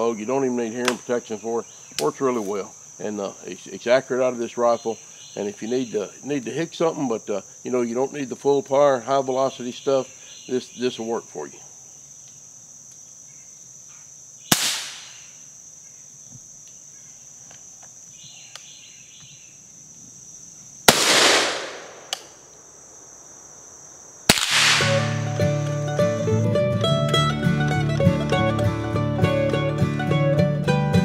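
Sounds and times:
insects droning: 0.0 - 31.0
gunshots: 14.5 - 15.2, 20.9 - 22.4, 24.3 - 25.4
bluegrass music with mandolin: 25.2 - 31.0.

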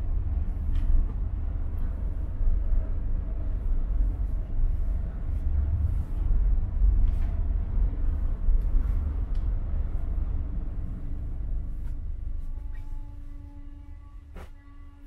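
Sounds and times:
ship engine rumble: 0.0 - 15.0
bed sheet rustling: 14.3 - 14.6.

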